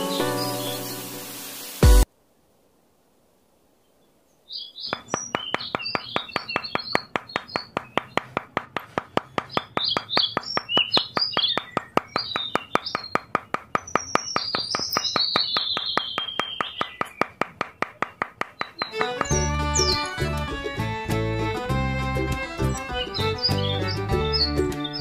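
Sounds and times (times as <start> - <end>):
small birds chirping: 3.8 - 25.0
fast even clicking: 4.9 - 20.8.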